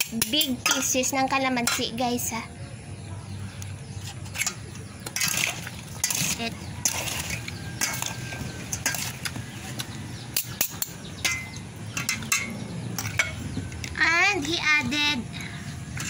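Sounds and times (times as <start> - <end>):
spoons scraping metal bowl: 4.0 - 9.3.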